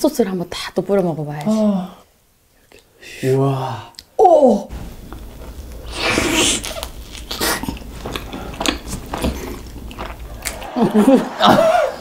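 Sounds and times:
crunchy chewing: 0:04.7 - 0:10.8
crisp bite into crust: 0:05.4 - 0:10.6.

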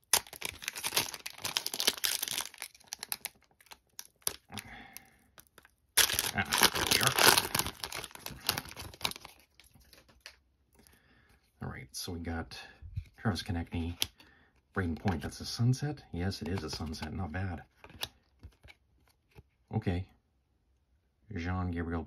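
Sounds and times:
foil wrapper tearing and crinkling: 0:00.0 - 0:04.6, 0:05.5 - 0:10.4.

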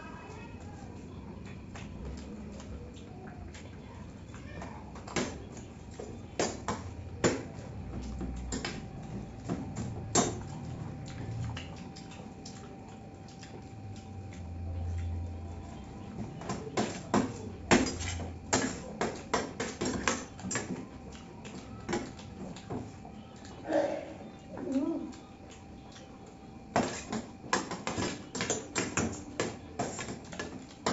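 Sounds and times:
person chewing: 0:10.4 - 0:16.8.

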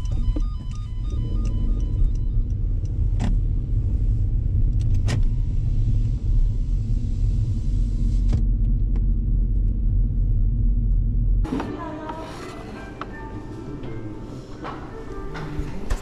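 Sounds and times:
car engine and road noise: 0:00.0 - 0:11.6.

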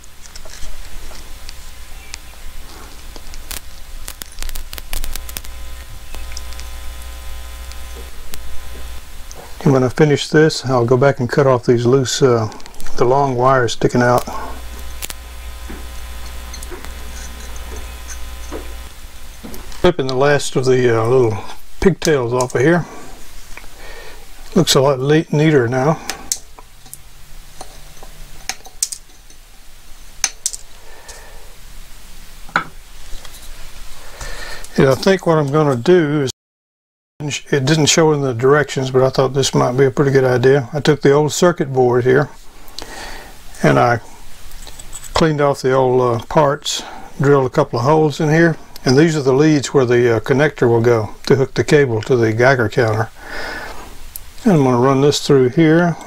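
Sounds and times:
low electrical hum: 0:00.0 - 0:36.3, 0:37.2 - 0:56.0
clicks and taps of soldering: 0:03.1 - 0:09.6, 0:14.2 - 0:19.8.

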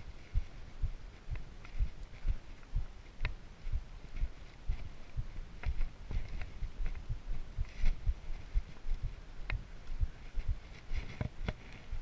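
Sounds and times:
footsteps on dirt trail: 0:00.0 - 0:12.0.

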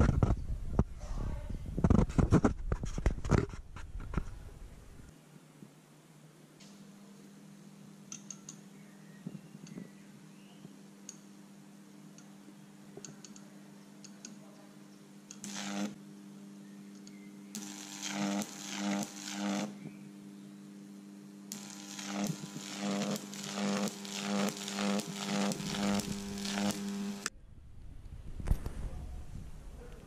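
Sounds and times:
electric arcs crackling: 0:15.3 - 0:16.0, 0:17.0 - 0:20.0, 0:21.5 - 0:27.3
transformer humming: 0:15.3 - 0:16.0, 0:21.5 - 0:28.2.

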